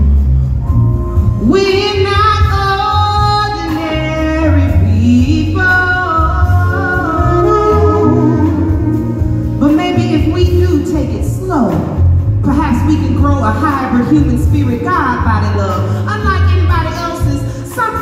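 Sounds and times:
low bass line: 0.0s - 17.6s
woman singing with vibrato: 1.4s - 9.8s.

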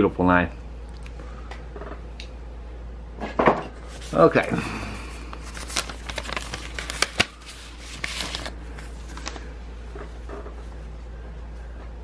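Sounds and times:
steady low hum: 0.0s - 12.0s
paper rustling: 3.9s - 10.6s.

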